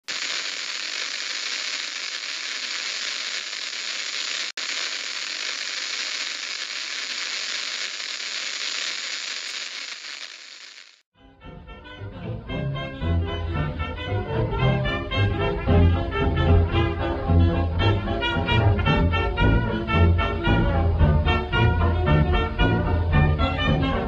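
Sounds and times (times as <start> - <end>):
dense crackling hiss: 0.0 - 11.1.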